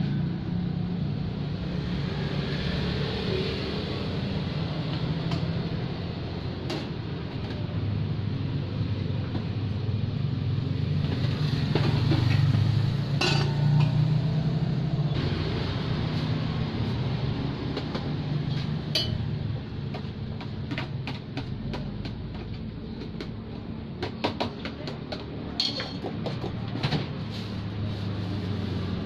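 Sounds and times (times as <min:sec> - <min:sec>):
metal utensils and pans clinking: 0:11.7 - 0:14.1, 0:18.5 - 0:19.2, 0:25.6 - 0:26.1.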